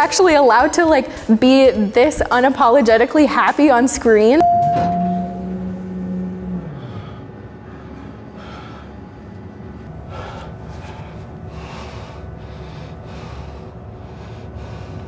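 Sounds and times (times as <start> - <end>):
low steady hum: 4.1 - 15.0
person breathing hard: 6.7 - 9.3, 10.0 - 15.0.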